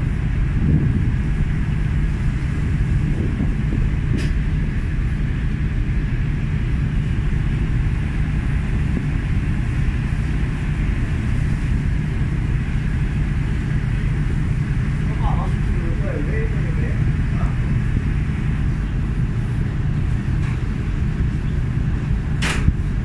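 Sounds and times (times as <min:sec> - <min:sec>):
ship engine drone: 0:00.0 - 0:23.0
sharp click: 0:22.4 - 0:22.8.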